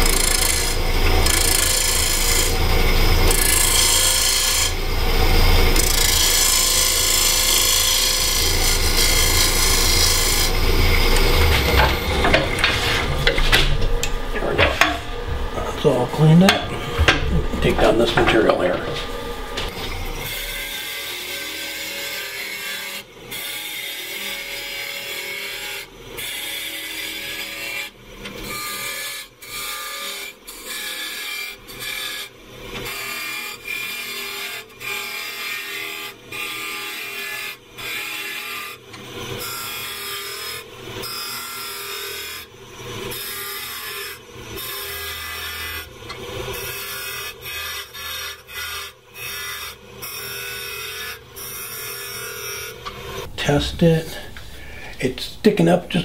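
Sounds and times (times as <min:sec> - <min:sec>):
lathe tool cutting wood: 0:00.0 - 0:56.0.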